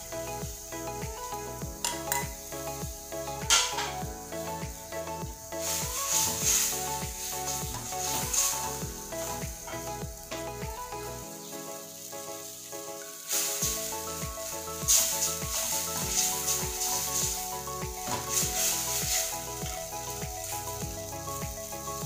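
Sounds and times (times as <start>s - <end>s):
background music with beat: 0.0s - 22.0s
food sizzling in a pan: 0.0s - 22.0s
wooden spatula stirring: 13.3s - 20.8s.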